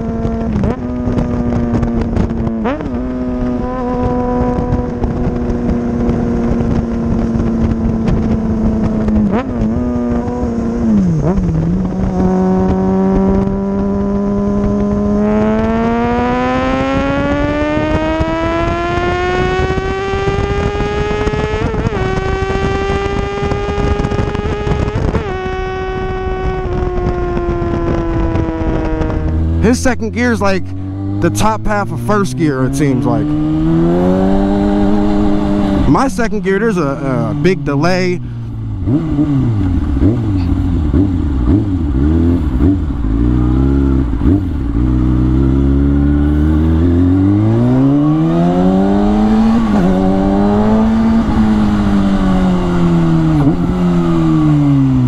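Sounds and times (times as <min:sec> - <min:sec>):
motorcycle engine accelerating: 0:00.0 - 0:55.0.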